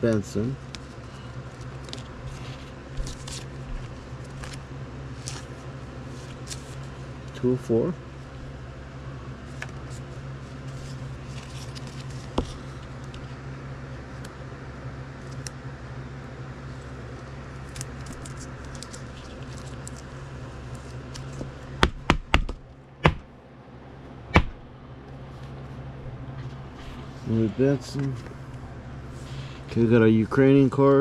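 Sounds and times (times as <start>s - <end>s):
low hum: 0.0s - 31.0s.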